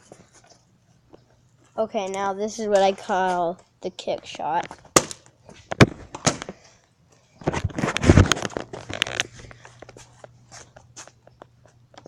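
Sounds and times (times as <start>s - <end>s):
handling noise rustling: 4.2s - 11.9s.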